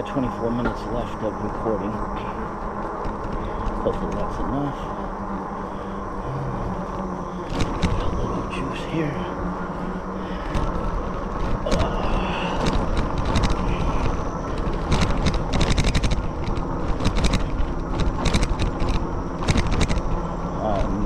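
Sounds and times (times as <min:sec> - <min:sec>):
bike tyres rolling on path: 0:00.0 - 0:21.0
wind on microphone: 0:10.4 - 0:20.2
short sharp knocks and rattles: 0:12.5 - 0:20.0.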